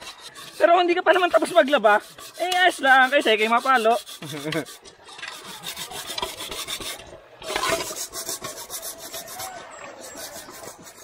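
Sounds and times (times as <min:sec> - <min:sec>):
pumice stone scrubbing a pot: 0:00.0 - 0:11.0.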